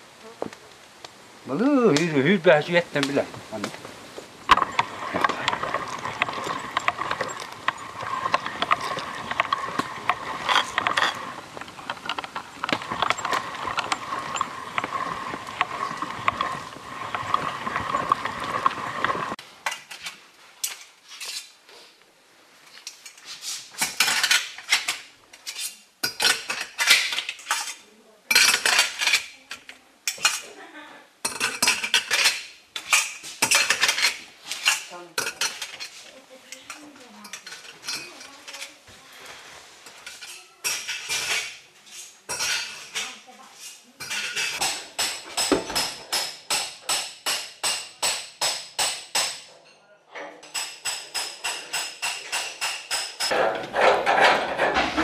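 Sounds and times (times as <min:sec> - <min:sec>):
hand-cranked meat grinder grinding: 0:04.5 - 0:19.4
metal utensils clinking on dishes: 0:04.5 - 0:20.1, 0:23.8 - 0:30.6, 0:31.2 - 0:38.8, 0:40.0 - 0:48.2.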